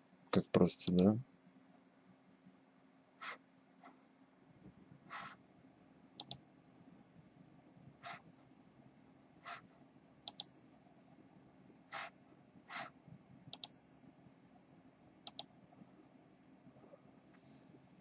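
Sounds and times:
computer mouse clicking: 0.8s - 1.0s, 6.2s - 6.4s, 10.2s - 10.5s, 13.5s - 13.8s, 15.2s - 15.5s.

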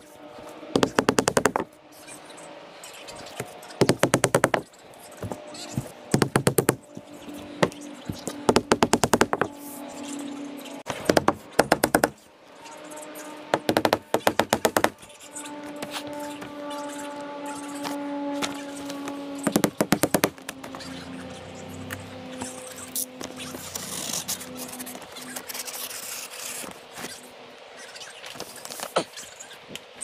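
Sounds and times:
hammer tacker stapling: 13.6s - 15.0s.

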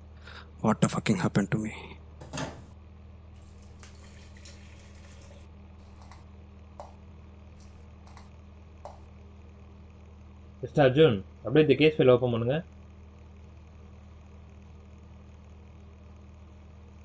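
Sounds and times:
steady low hum: 0.0s - 17.0s
coffee pouring into mug: 3.4s - 6.2s, 7.6s - 8.3s.

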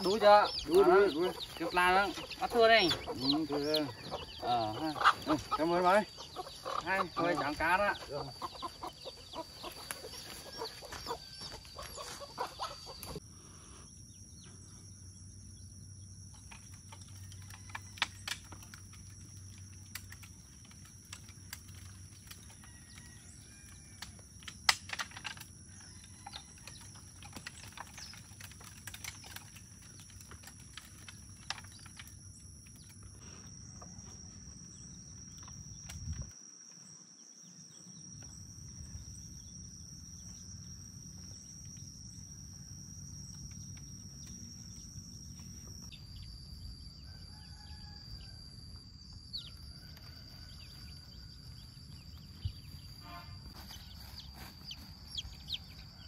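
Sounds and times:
chickens clucking: 0.0s - 13.2s
high insect drone: 0.0s - 56.0s.

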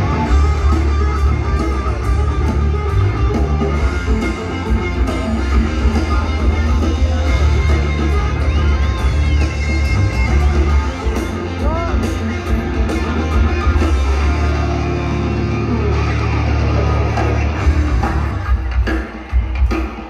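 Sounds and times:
electric guitar lead: 0.0s - 18.8s
live hard rock band: 0.0s - 20.0s.

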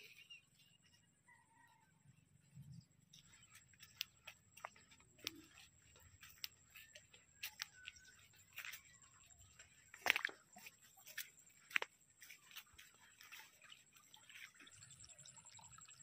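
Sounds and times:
footsteps on dirt path: 3.1s - 15.0s.

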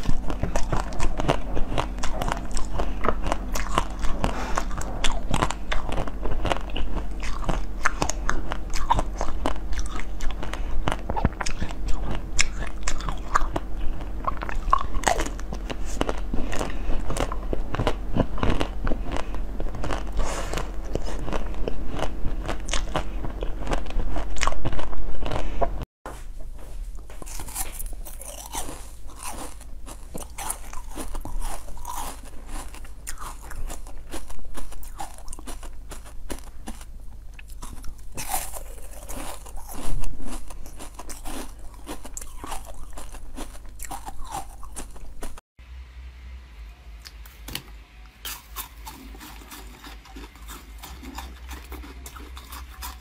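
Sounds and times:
biting and chewing sweets: 0.0s - 25.9s, 26.8s - 45.4s, 48.2s - 53.0s.

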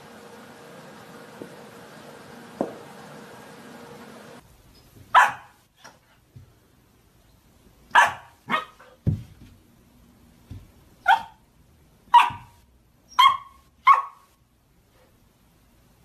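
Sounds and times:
dull thump: 2.5s - 2.9s, 9.0s - 9.6s
puppy barking: 5.1s - 5.6s, 7.9s - 9.0s, 11.0s - 11.4s, 12.1s - 14.3s.

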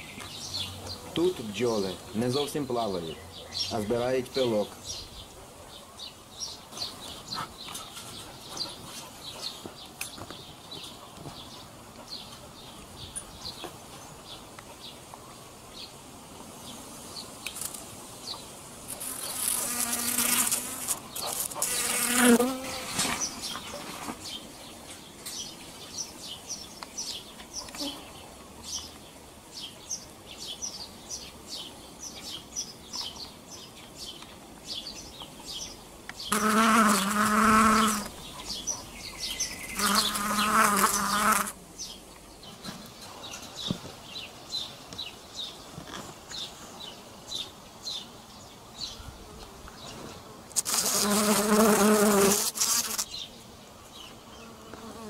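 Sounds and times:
honeybees buzzing: 18.8s - 24.4s, 36.2s - 41.6s, 49.3s - 55.0s.

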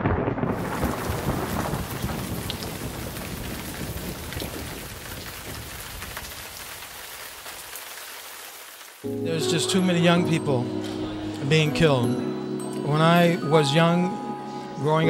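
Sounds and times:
low thunder rumble: 0.0s - 6.3s
steady rain: 0.0s - 9.1s.

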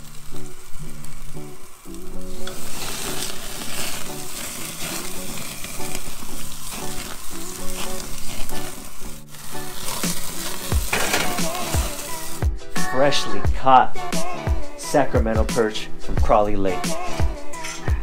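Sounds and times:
fish sizzling on a grill: 0.0s - 13.3s
music with low melody: 0.0s - 18.0s.

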